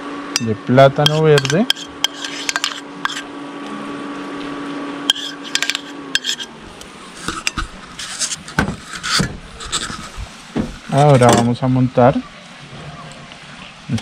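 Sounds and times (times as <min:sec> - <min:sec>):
steady low hum: 0:00.0 - 0:14.0
metal spoon clinking on pan: 0:00.4 - 0:03.2, 0:05.1 - 0:06.5.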